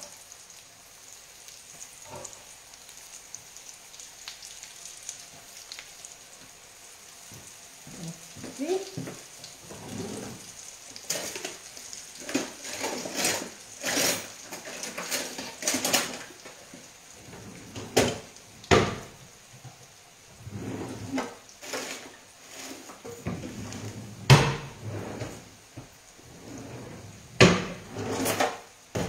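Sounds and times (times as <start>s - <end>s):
oil sizzling in frying pan: 0.0s - 29.0s
pots and dishes clattering: 2.0s - 2.4s, 9.0s - 10.4s, 11.0s - 19.1s, 20.5s - 25.5s, 26.4s - 29.0s.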